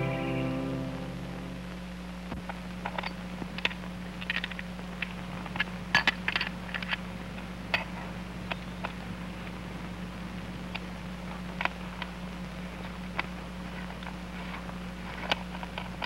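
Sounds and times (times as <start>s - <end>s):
steady low hum: 0.0s - 16.0s
metallic clicks of small parts: 2.8s - 7.0s.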